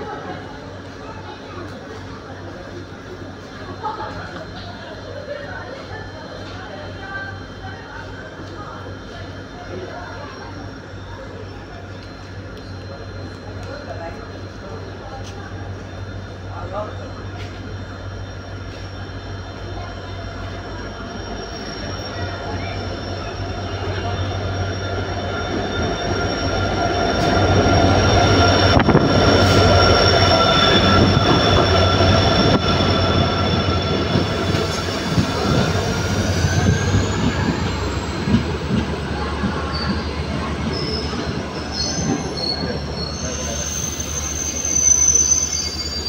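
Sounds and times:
train coaches rumbling: 0:00.0 - 0:46.0
high-pitched metallic wheel squeal: 0:14.6 - 0:46.0.

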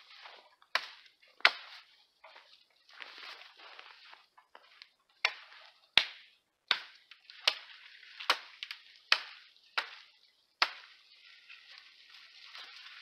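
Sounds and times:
hatchet chopping wood: 0:00.7 - 0:01.9, 0:05.2 - 0:11.0.

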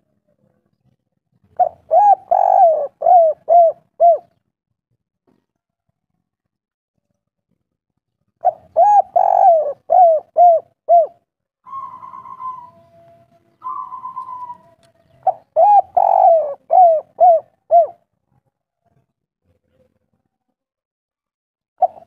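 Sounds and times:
dove cooing: 0:01.6 - 0:04.4, 0:08.4 - 0:18.0, 0:21.8 - 0:22.0.

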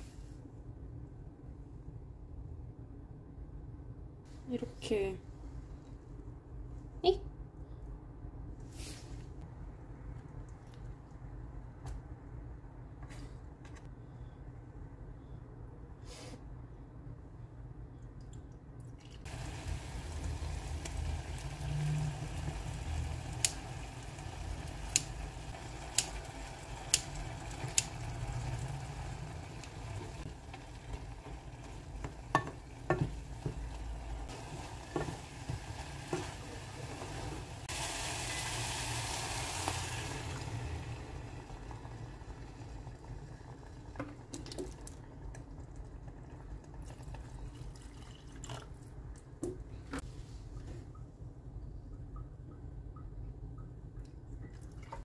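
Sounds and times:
food sizzling in oil: 0:19.3 - 0:42.9
wooden spoon knocking pot: 0:32.0 - 0:33.7.

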